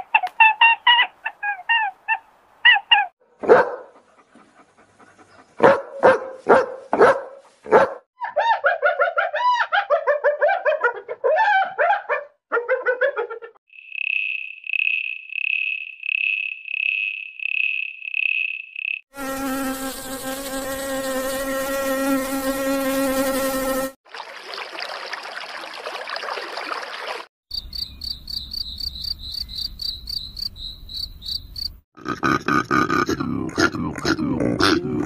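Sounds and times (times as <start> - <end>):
insect pulsing chirp: 13.7 - 19.0, 27.5 - 31.8
rapid high insect chirping: 13.7 - 20.6, 27.5 - 31.8
insect wing buzzing: 13.8 - 24.0.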